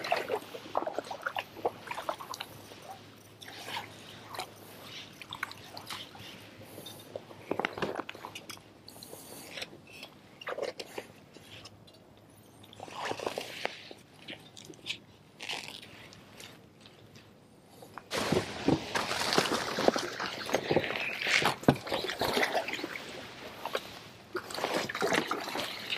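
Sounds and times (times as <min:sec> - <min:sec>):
leaves scraping against hull: 0:12.8 - 0:16.6, 0:18.1 - 0:25.9
kayak paddle splashing: 0:18.1 - 0:25.9.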